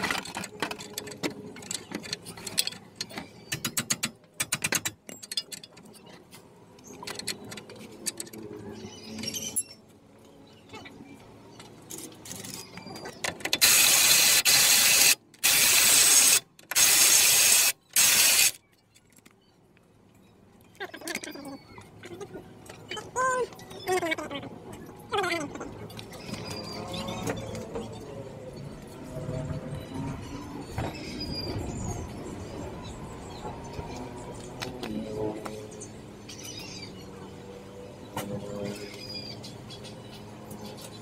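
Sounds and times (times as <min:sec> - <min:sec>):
ratchet clicking: 0:13.6 - 0:18.6.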